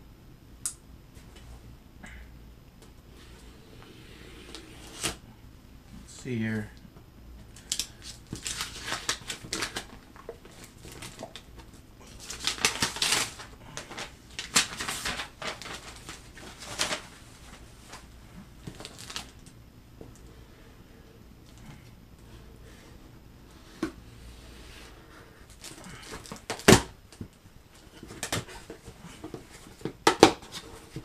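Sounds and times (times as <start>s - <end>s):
tape tearing: 4.5s - 5.2s, 12.2s - 17.0s
paper rustling: 7.6s - 11.5s, 12.1s - 18.1s.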